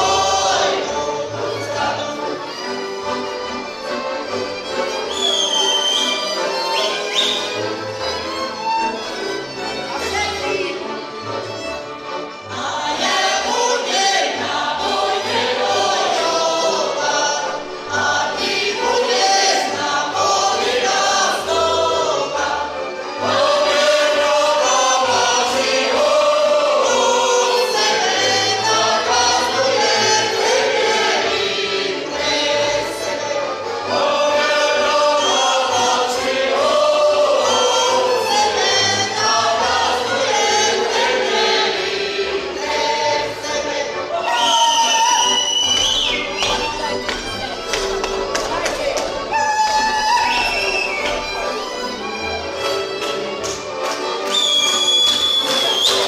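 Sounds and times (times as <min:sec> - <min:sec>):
women's group singing folk song: 0:00.0 - 0:05.3, 0:12.0 - 0:51.4.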